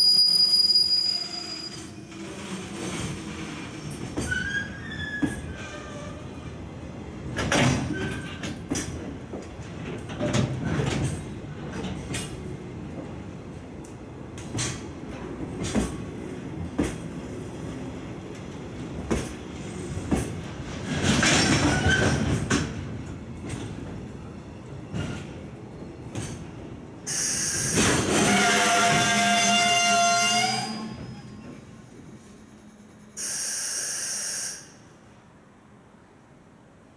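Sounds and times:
train wheel squeal: 0.0 - 6.5, 7.8 - 8.4, 21.2 - 22.6, 27.1 - 34.8
train rumble: 2.1 - 33.2.

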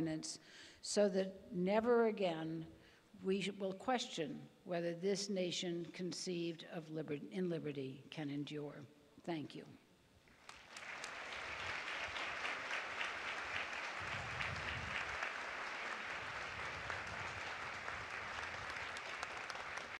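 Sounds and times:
large crowd applauding: 10.4 - 20.0.

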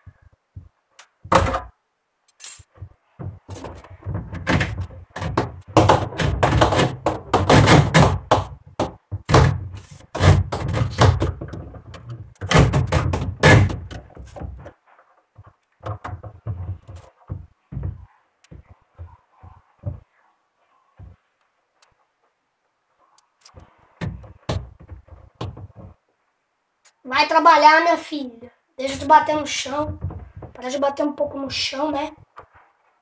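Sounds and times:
plastic hose thunks and scraping: 0.6 - 1.7, 2.7 - 20.1, 23.5 - 26.0, 29.7 - 30.7.

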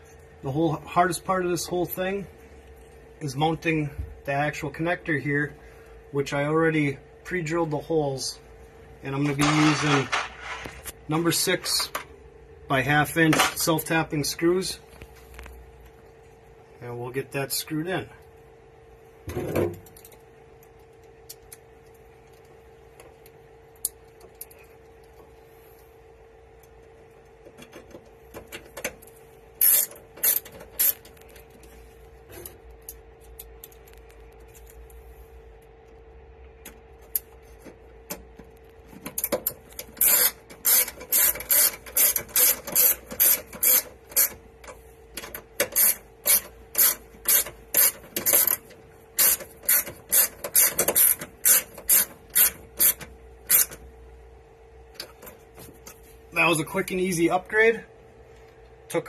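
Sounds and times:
faint steady hum: 0.0 - 59.0
screwdriver clicking: 39.2 - 44.4, 45.2 - 48.6, 49.2 - 53.8.

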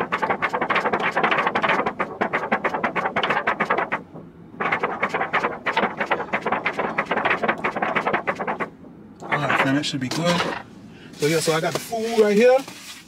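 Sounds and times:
wipe rubbing plastic shield: 0.0 - 9.9.

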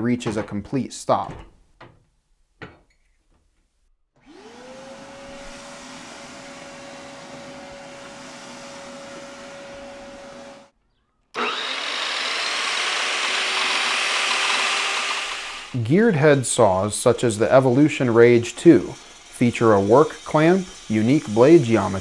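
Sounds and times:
chop saw running: 4.2 - 10.7, 11.4 - 22.0
shop vacuum motor whine: 4.2 - 10.7, 11.4 - 15.8.

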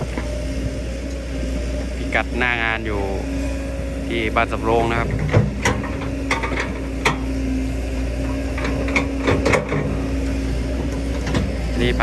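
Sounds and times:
excavator diesel engine running: 0.0 - 12.0
metallic clanks from excavator bucket: 4.7 - 7.3, 8.3 - 10.0.

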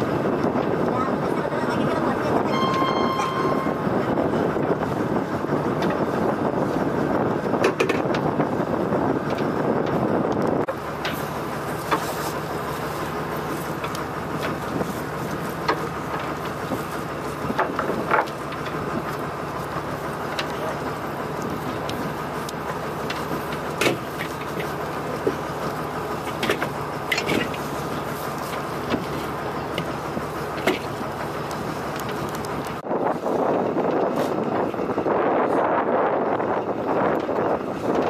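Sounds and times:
boat engine running: 0.0 - 38.0
rope and gear knocking: 9.2 - 32.8.

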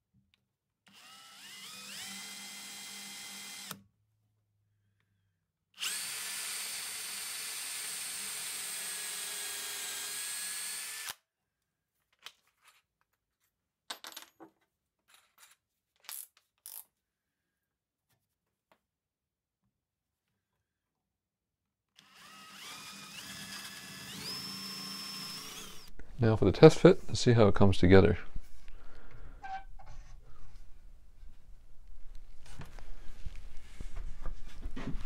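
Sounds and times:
power drill whining: 0.9 - 3.8, 5.8 - 11.2, 22.0 - 26.0.

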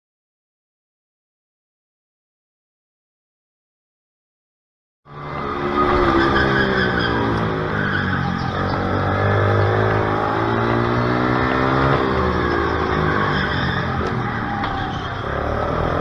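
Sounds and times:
go-kart engine revving: 5.1 - 16.0
pit bike engine revving: 5.1 - 16.0.

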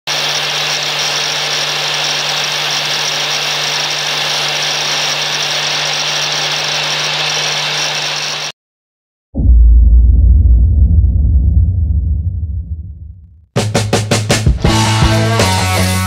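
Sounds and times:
angle grinder cutting steel: 0.1 - 8.5.

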